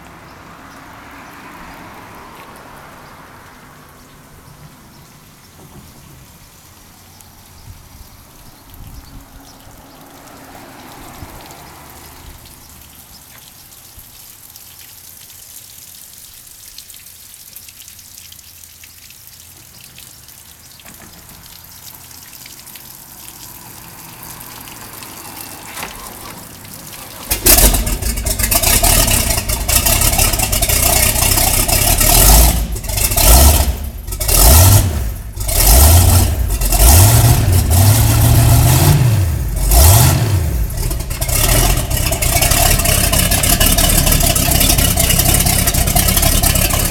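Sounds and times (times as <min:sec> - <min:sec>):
boat engine revving: 0:24.1 - 0:46.9.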